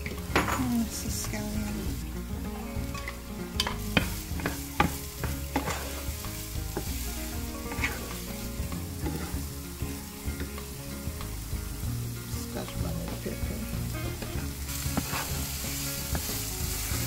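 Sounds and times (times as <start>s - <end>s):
wooden spoon tapping and scraping pan: 0.0s - 1.5s, 2.8s - 11.9s, 14.2s - 17.0s
onions sizzling in oil: 0.0s - 17.0s.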